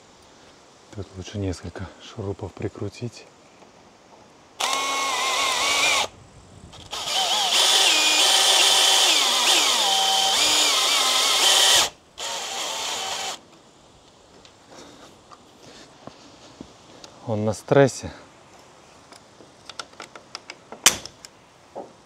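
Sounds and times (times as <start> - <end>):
power drill driving screws: 4.6 - 6.1, 6.8 - 13.4.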